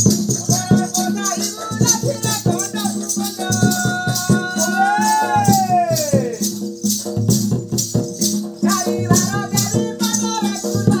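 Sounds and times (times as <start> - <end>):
jingling percussion beat: 0.0 - 11.0.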